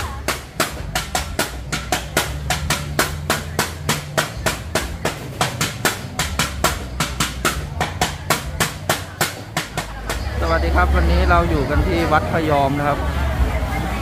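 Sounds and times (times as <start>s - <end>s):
utensil knocking: 0.0s - 10.4s.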